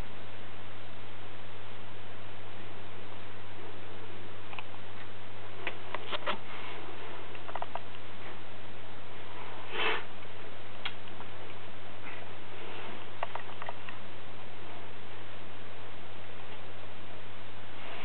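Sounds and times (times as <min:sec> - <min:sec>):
steady hiss and low hum: 0:00.0 - 0:18.0
small clicks and rustles: 0:04.5 - 0:08.4, 0:12.8 - 0:14.1
short breathy puff: 0:09.7 - 0:10.1.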